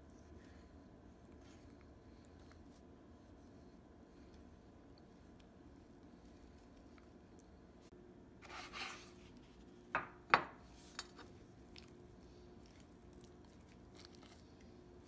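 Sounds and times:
rustling scrape: 8.4s - 9.8s.

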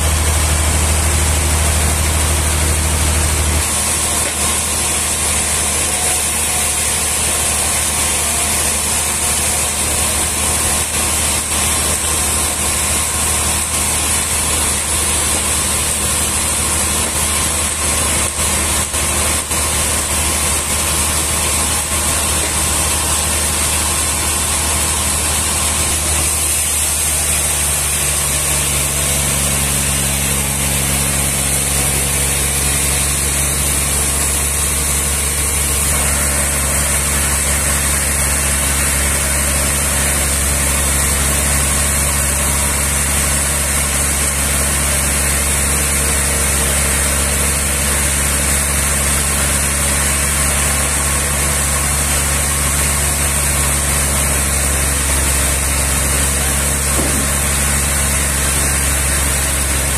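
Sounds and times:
sawmill engine humming: 0.0s - 59.9s.

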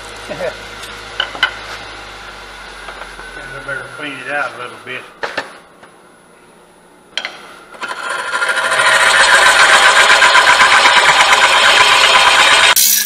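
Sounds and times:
lathe tool scraping wood: 7.8s - 12.8s.

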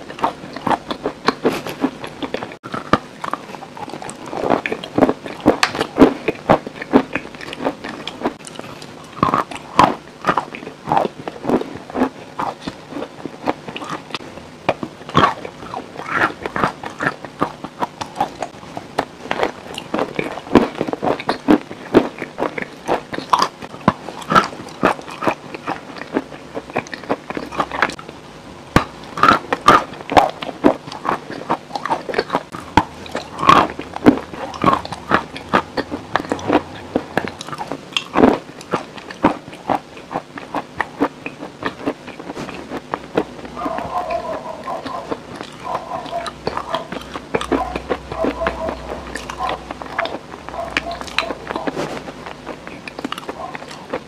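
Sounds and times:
person biting and chewing: 0.0s - 28.1s, 28.7s - 54.0s.

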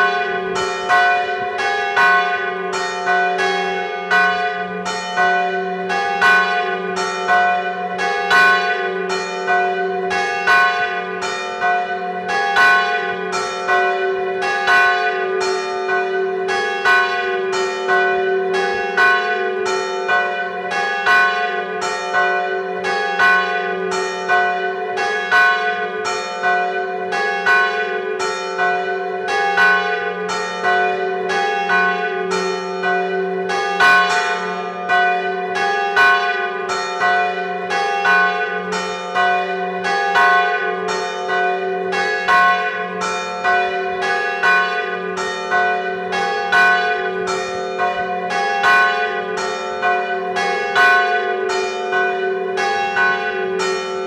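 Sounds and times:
church bells tolling: 0.0s - 54.0s.

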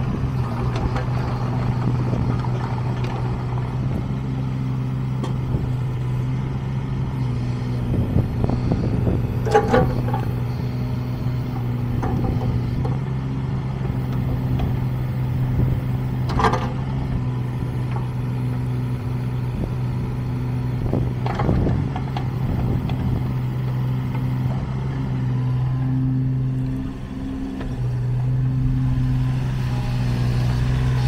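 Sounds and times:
mini excavator diesel engine running: 0.0s - 31.0s
metallic clanks and creaks: 9.4s - 10.5s, 11.6s - 13.0s, 16.2s - 16.9s.

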